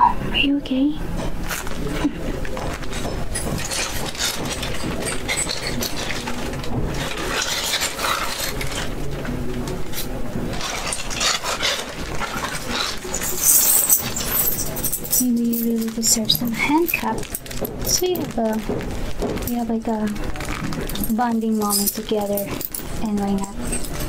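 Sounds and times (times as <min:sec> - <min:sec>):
rummaging rustling: 0:01.4 - 0:24.0
handcuff chain jangling: 0:02.5 - 0:09.0, 0:10.5 - 0:24.0
small metallic clinks: 0:12.3 - 0:18.7, 0:20.8 - 0:24.0.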